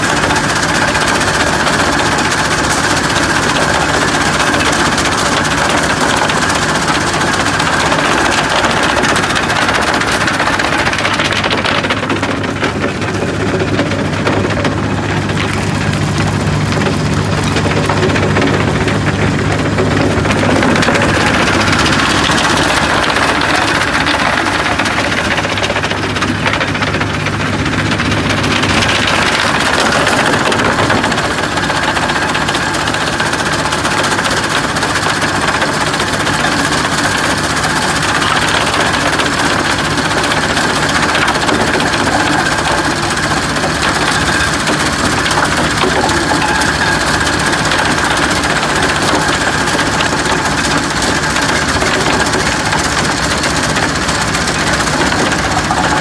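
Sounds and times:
stones rattling over mesh: 0:33.8 - 0:56.0.

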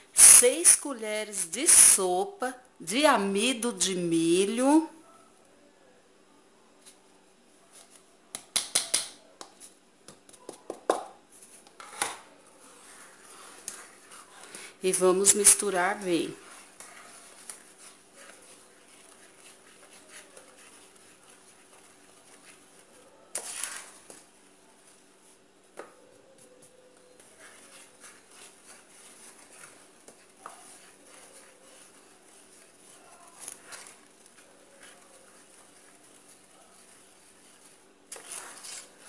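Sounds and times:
spatula scraping a pot: 0:11.7 - 0:24.4, 0:27.1 - 0:39.0.

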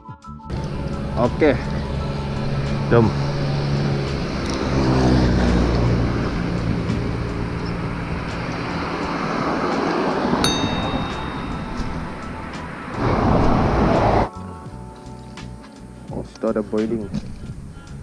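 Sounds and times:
vehicle passing: 0:00.5 - 0:14.3.

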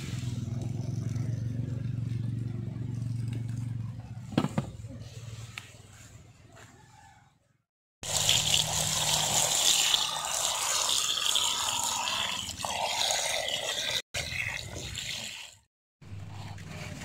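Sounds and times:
water pouring into a metal pot: 0:08.0 - 0:15.7.

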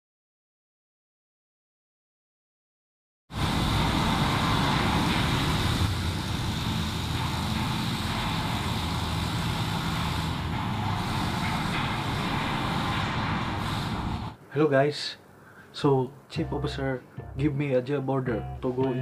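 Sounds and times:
low mechanical rumble with hiss: 0:03.4 - 0:14.4.

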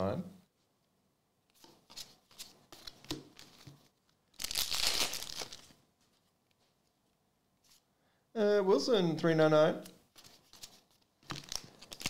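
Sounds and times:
plastic wrapper crinkling: 0:02.7 - 0:05.8, 0:10.3 - 0:12.0.

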